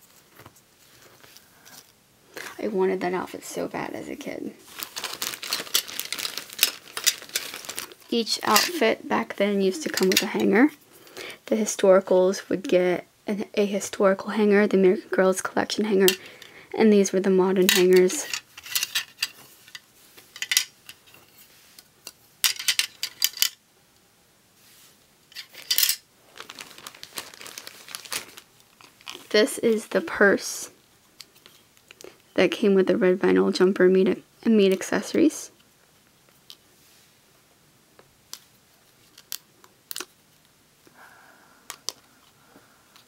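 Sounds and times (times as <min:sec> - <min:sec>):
plastic hangers clacking: 0:04.8 - 0:08.9, 0:09.7 - 0:10.6, 0:22.4 - 0:23.6
soft scrape: 0:24.6 - 0:25.0, 0:36.8 - 0:37.2.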